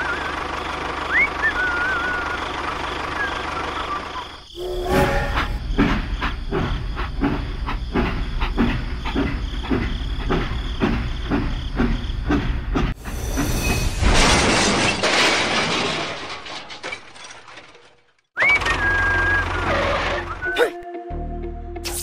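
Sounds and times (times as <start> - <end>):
toy train rumbling on track: 0.0 - 13.9, 18.4 - 20.5.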